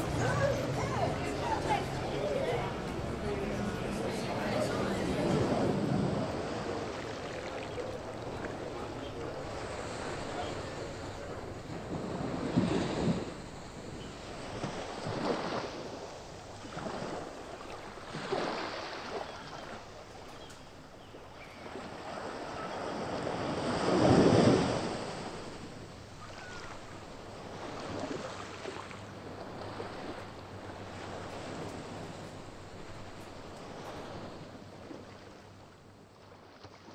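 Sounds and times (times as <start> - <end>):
ocean waves breaking on shore: 0.0 - 36.9.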